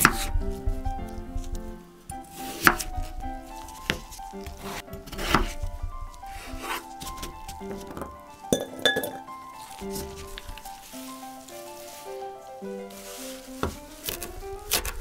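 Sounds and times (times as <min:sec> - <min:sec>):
knife chopping on wooden board: 0:00.0 - 0:00.3, 0:02.4 - 0:02.9, 0:03.8 - 0:05.6.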